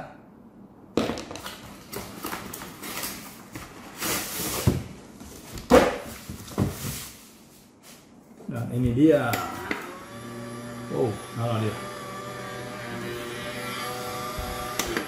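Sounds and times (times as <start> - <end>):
cardboard rustling and scraping: 1.7 - 8.1.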